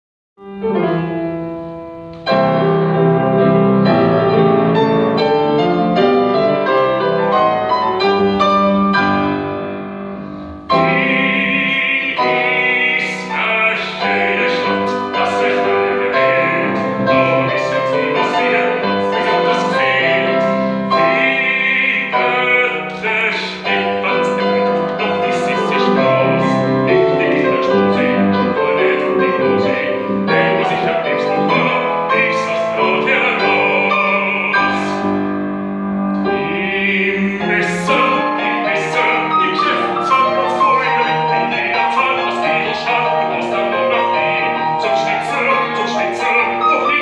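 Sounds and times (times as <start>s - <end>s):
grand piano: 0.4s - 47.0s
bass voice singing: 10.7s - 35.1s, 36.2s - 47.0s.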